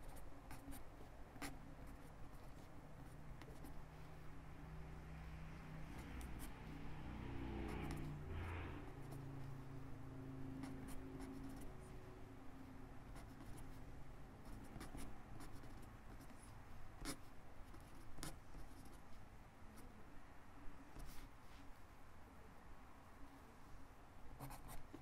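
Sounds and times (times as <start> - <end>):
pen scratching on paper: 0.0 - 3.8, 5.8 - 9.2, 10.6 - 11.8, 13.0 - 13.8, 14.4 - 19.0, 24.4 - 25.0.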